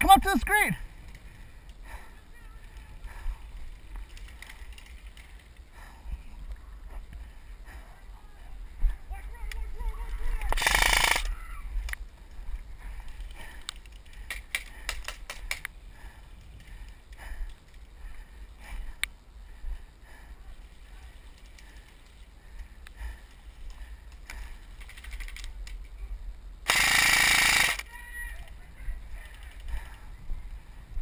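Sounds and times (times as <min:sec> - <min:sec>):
airsoft rifle shots: 0:10.5 - 0:11.3, 0:26.7 - 0:27.9.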